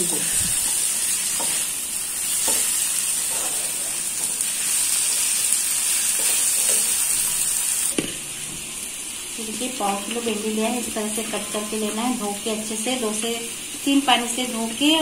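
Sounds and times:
vegetables sizzling in frying pan: 0.0s - 15.0s
spatula scraping pan: 2.3s - 5.3s.

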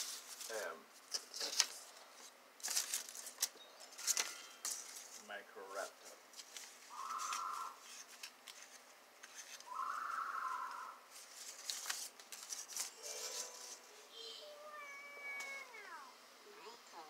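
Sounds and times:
paper crinkling and rustling: 0.0s - 9.7s, 11.1s - 13.8s.

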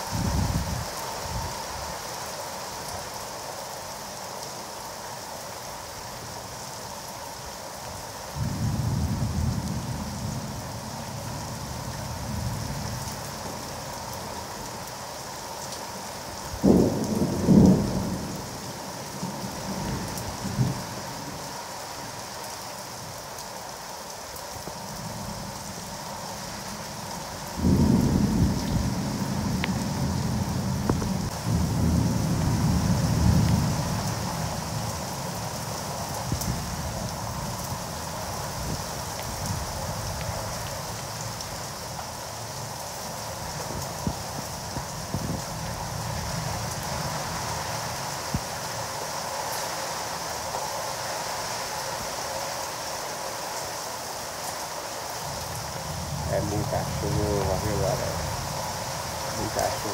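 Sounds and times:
heavy rain: 0.0s - 59.9s
thunder rumbling: 56.0s - 59.9s.

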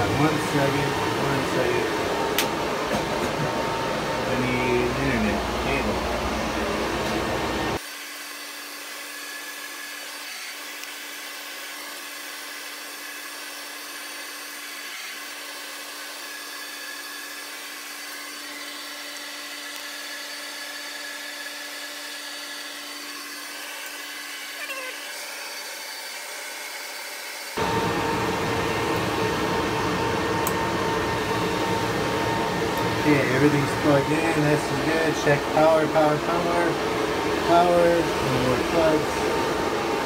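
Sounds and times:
machine hum with high whine: 0.0s - 7.8s, 27.5s - 40.0s.

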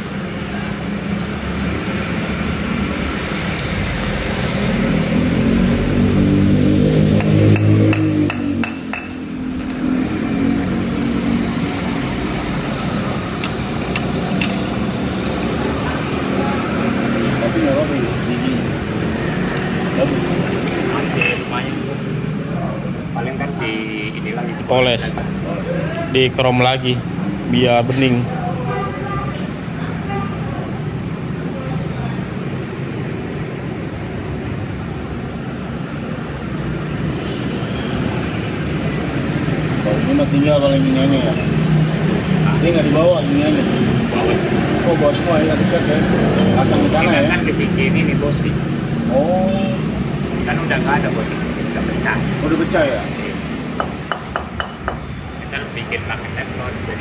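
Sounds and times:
low rumble of vehicles: 0.0s - 57.0s
motor vehicle engine rumbling: 53.1s - 57.0s.

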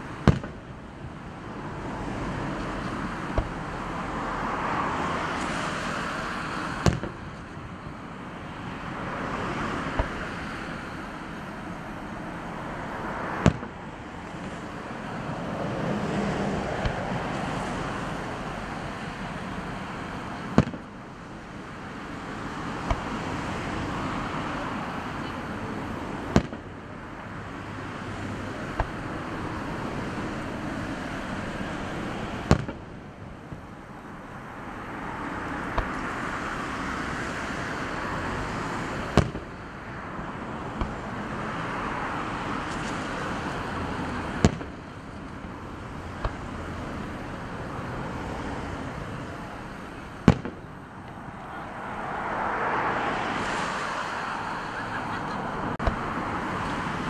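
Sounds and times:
rushing noise: 0.0s - 57.0s
fireworks bangs: 0.1s - 1.2s, 2.8s - 4.3s, 5.3s - 7.6s, 8.6s - 26.9s, 27.9s - 33.8s, 38.9s - 39.6s, 40.6s - 41.4s, 42.5s - 47.4s, 48.8s - 51.2s.

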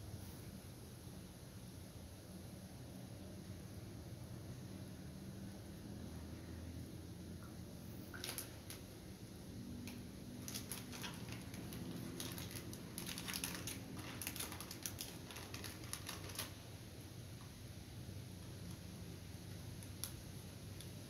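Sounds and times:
plastic wrapper crinkling: 8.1s - 8.9s, 9.8s - 16.6s.

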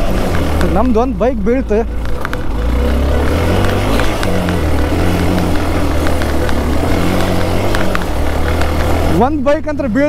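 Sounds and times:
motorcycle engine running: 0.0s - 10.0s
sharp clicks: 1.8s - 9.2s.

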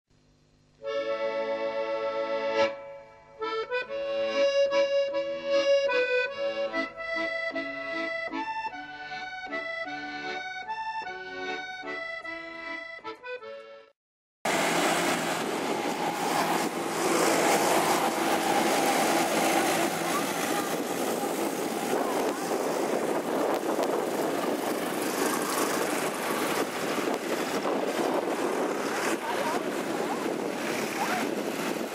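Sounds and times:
accordion music: 0.8s - 31.9s
tractor engine running: 14.5s - 31.9s.

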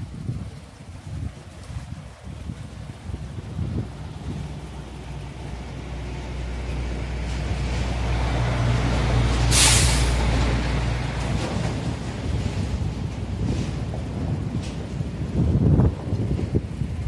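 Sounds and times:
heavy vehicle engine rumbling: 2.2s - 17.0s
loud hiss of air: 9.4s - 10.3s.

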